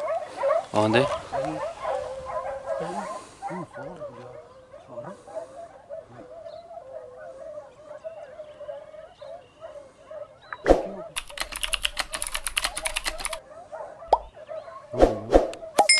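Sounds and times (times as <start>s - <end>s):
distant dogs baying: 0.0s - 15.8s
typewriter-like clicks: 11.2s - 13.4s.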